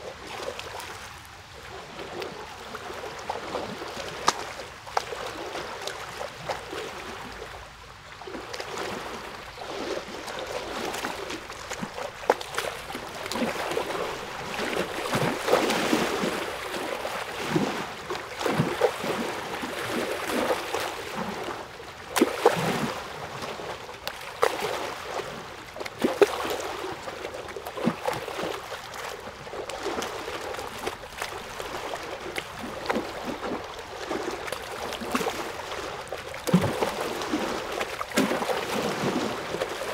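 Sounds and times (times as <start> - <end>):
small water splashes: 0.0 - 39.9
water lapping and trickling: 0.0 - 39.9.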